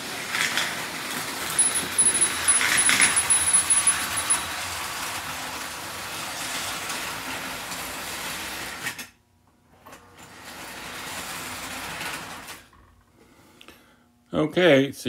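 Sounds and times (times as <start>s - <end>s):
toy train motor whirring: 1.6s - 4.4s.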